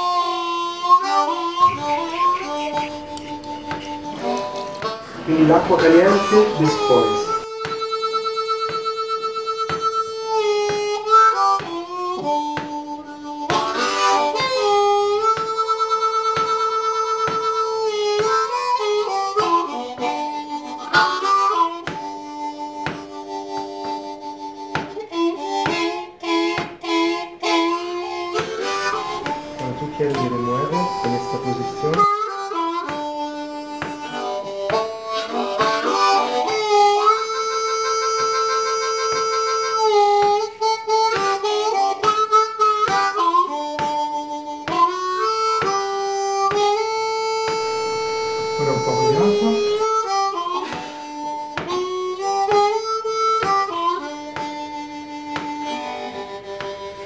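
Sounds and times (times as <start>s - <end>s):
harmonica music: 0.0s - 57.0s
rhythmic accompaniment: 1.0s - 57.0s.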